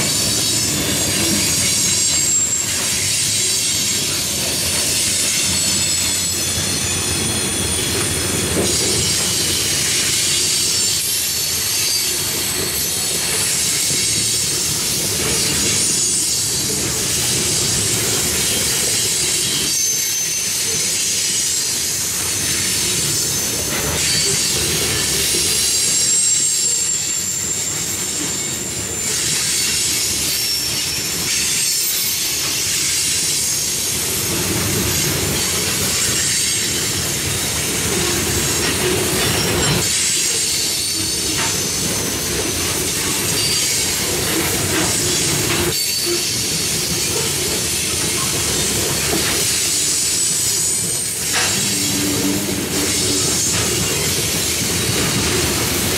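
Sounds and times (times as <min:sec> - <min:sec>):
train wheels rumbling on rail: 0:00.0 - 0:55.9
high-pitched wheel squeal: 0:00.1 - 0:16.8, 0:17.7 - 0:33.9, 0:37.9 - 0:55.7
train trucks knocking: 0:31.1 - 0:55.9.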